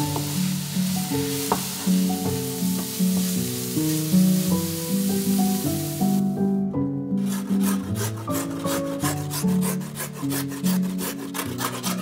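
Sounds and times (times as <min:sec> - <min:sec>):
background music: 0:00.0 - 0:12.0
carrot grating on metal grater: 0:07.2 - 0:12.0.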